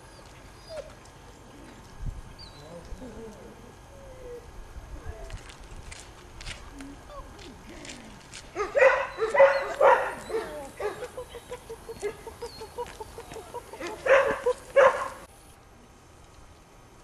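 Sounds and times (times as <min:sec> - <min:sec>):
puppy barking: 0:08.6 - 0:15.3
puppy yipping: 0:08.6 - 0:15.3.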